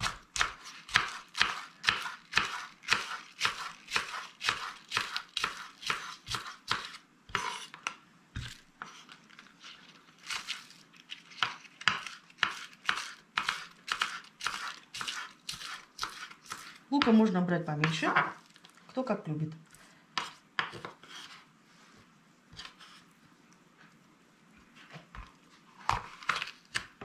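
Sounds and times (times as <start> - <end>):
knife chopping on wooden board: 0.0 - 8.5, 11.4 - 17.2, 20.2 - 21.3.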